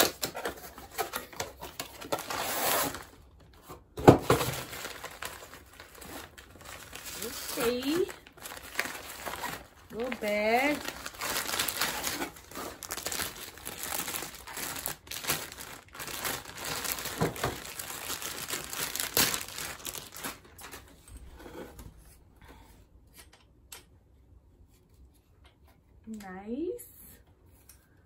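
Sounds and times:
plastic packaging crinkling: 0:00.0 - 0:03.6, 0:04.2 - 0:21.0.

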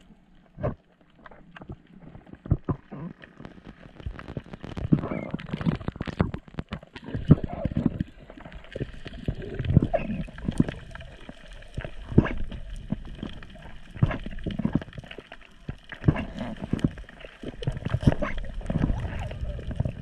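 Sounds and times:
muffled underwater gurgling: 0:00.0 - 0:20.0.

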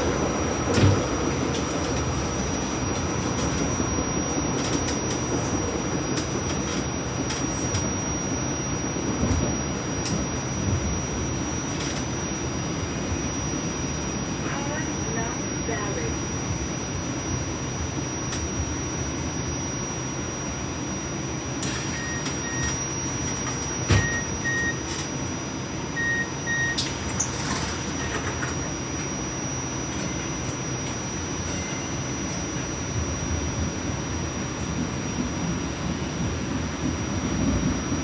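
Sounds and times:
train wheels rumbling on track: 0:00.0 - 0:12.2
high electrical whine: 0:00.0 - 0:38.0.

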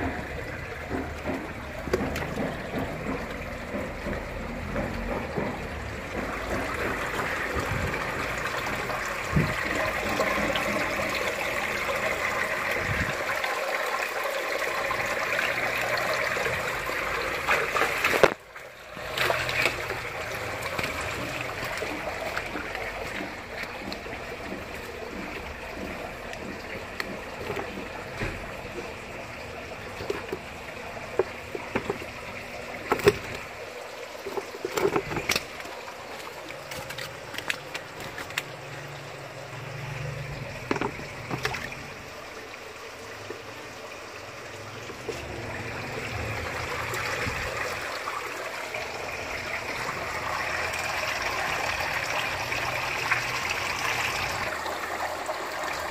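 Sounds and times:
sharp knocks and taps: 0:00.0 - 0:07.8, 0:20.8 - 0:28.9
water trickling into tank: 0:00.0 - 0:55.9.

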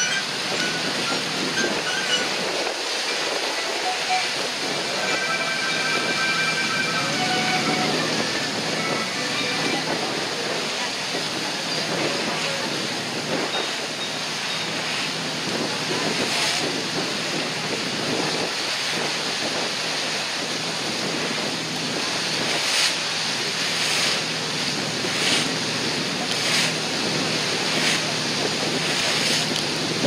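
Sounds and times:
sea water rushing past boat: 0:00.0 - 0:30.0
wind on microphone: 0:07.0 - 0:30.0.

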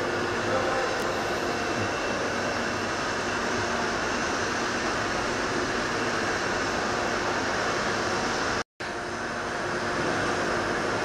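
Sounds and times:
train station hum and hiss: 0:00.0 - 0:11.0.

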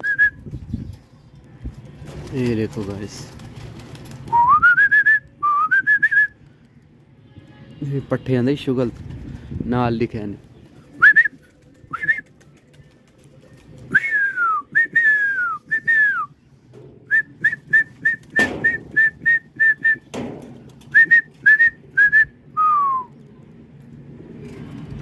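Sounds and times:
person whistling: 0:04.3 - 0:06.4, 0:13.9 - 0:16.3, 0:20.9 - 0:23.1.

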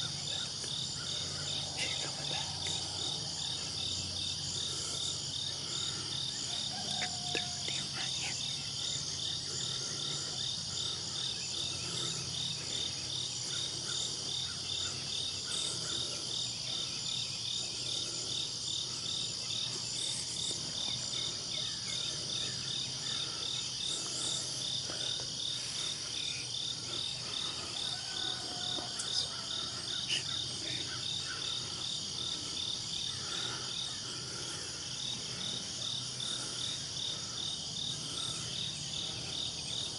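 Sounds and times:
insects buzzing: 0:00.0 - 0:39.9
insects pulsing chirp: 0:00.0 - 0:39.9.

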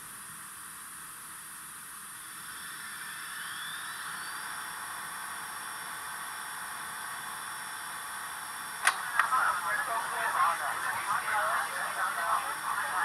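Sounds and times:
model locomotive steam hiss: 0:00.0 - 0:08.8
faint rising whine: 0:02.2 - 0:13.0.

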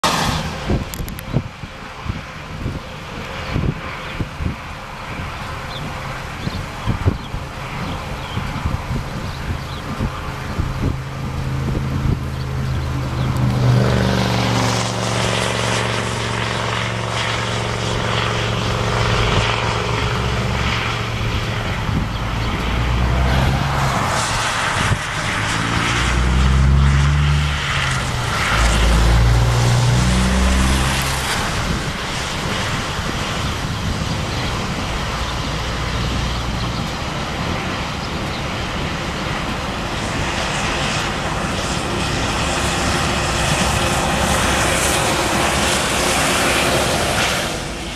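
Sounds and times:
car and truck engines droning: 0:00.0 - 0:47.9
tyres hissing on wet road: 0:42.8 - 0:47.9.

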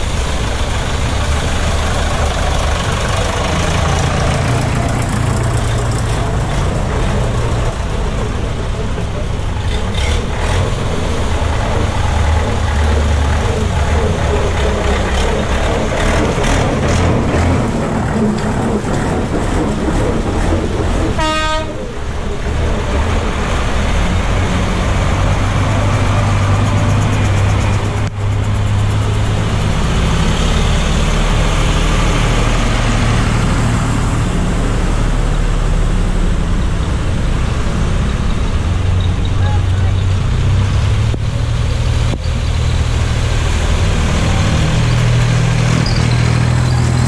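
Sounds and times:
tractor engines running: 0:00.0 - 0:47.0
wheels splashing through water: 0:00.0 - 0:47.0
vehicle horn toot: 0:21.2 - 0:21.8.

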